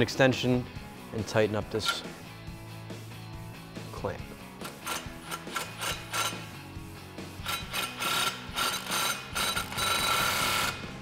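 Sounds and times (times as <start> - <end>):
impact wrench hammering: 4.6 - 6.6, 7.4 - 11.0.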